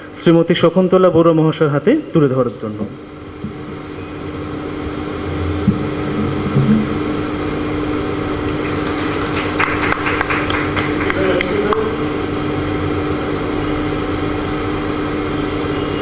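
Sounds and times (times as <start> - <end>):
steady hum: 0.0 - 16.0
audience applauding: 8.4 - 11.9.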